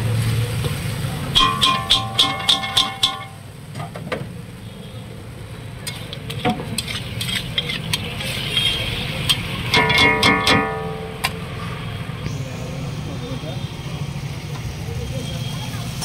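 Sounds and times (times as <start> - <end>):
light sizzle: 0.0 - 16.0
spatula scraping metal pan: 6.7 - 11.4.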